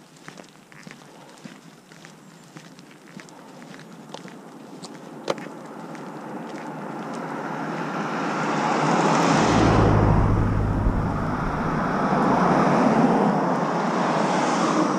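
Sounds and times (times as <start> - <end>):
truck passing: 6.7 - 14.9
vehicle approaching: 6.8 - 14.9.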